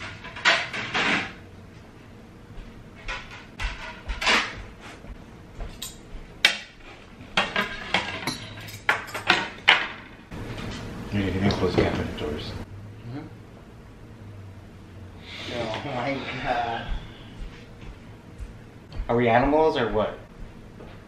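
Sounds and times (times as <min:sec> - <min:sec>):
plates and cutlery clattering: 0:00.0 - 0:01.4, 0:05.8 - 0:10.2.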